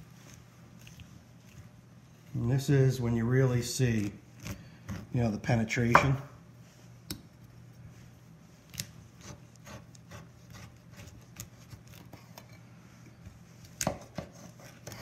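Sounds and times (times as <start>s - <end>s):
low steady hum: 0.0s - 15.0s
knife scraping along bones: 0.1s - 2.6s, 8.7s - 12.6s, 13.8s - 15.0s.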